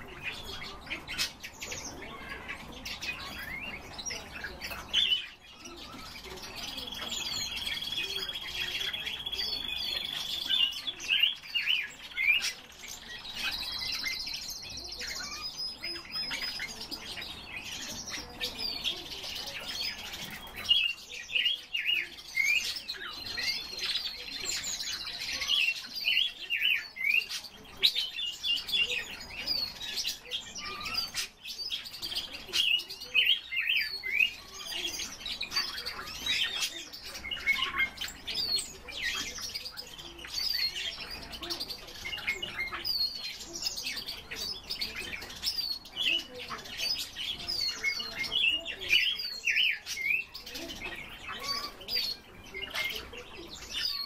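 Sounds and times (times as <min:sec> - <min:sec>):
birds chirping: 0:00.0 - 0:54.0.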